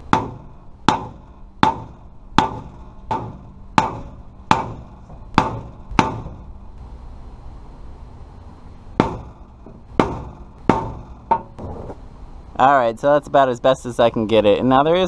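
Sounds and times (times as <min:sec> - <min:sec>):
hammer knocking with metallic ring: 0:00.1 - 0:06.4.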